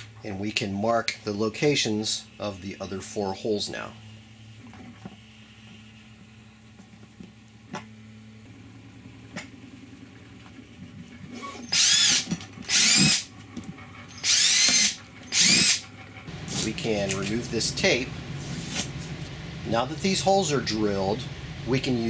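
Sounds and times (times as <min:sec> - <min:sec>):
low steady hum: 0:00.0 - 0:22.0
power drill drilling plastic: 0:11.3 - 0:13.3, 0:14.1 - 0:15.8.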